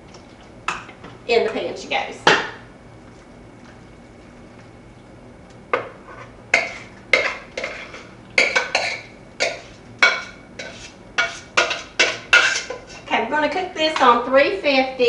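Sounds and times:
spoon knocking and scraping in pot: 5.8s - 13.0s.

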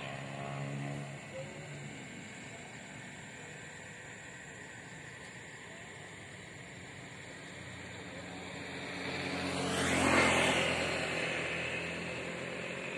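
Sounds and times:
vehicle passing by: 0.0s - 2.4s, 7.7s - 12.9s.

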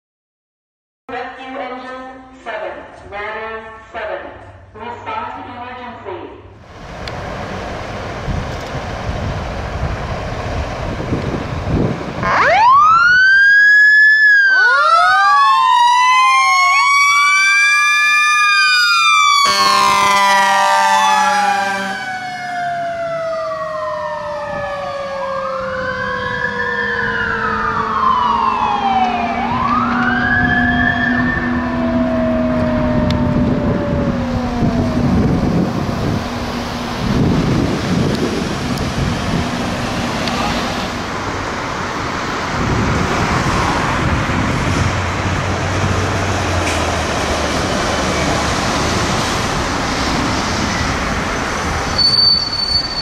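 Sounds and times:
electronic siren wailing: 12.2s - 35.8s
air horn blast: 19.4s - 22.2s.

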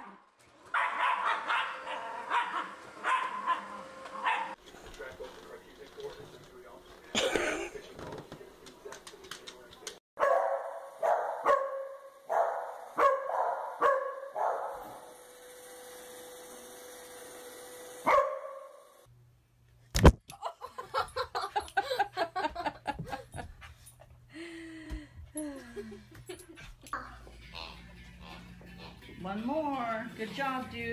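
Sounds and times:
dogs barking: 0.7s - 4.6s, 10.2s - 15.0s, 18.0s - 18.8s
short yapping barks: 18.1s - 18.6s.

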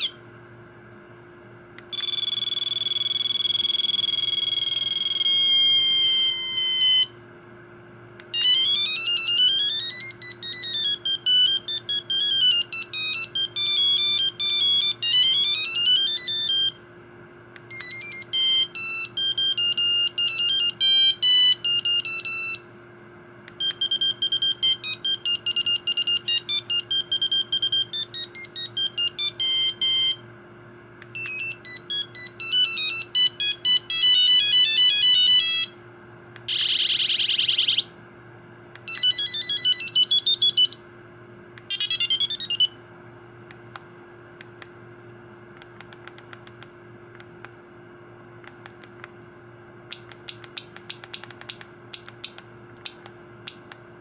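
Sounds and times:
mobile phone ringtone melodies: 1.9s - 7.1s, 8.4s - 16.8s, 17.7s - 22.6s, 23.6s - 30.2s, 31.2s - 35.8s, 36.5s - 37.9s, 38.9s - 40.8s, 41.7s - 42.8s.

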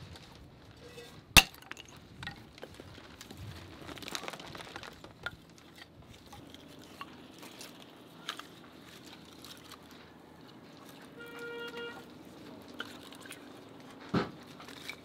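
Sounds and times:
hatchet chopping kindling: 1.4s - 1.9s.

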